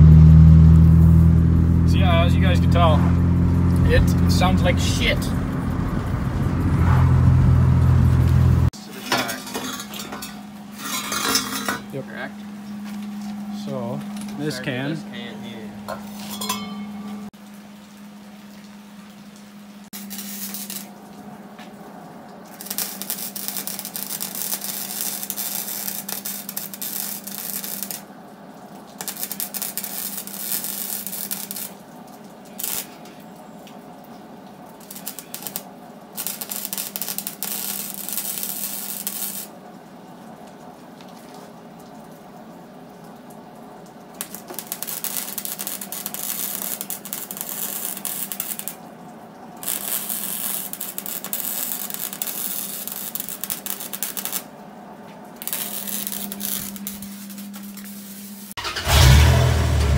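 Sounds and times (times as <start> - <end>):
welding arc crackling: 0.0 - 8.8, 19.9 - 21.1, 22.5 - 28.1, 28.9 - 31.8, 32.5 - 33.2, 34.7 - 39.6, 44.2 - 48.9, 49.6 - 54.5, 55.4 - 59.9.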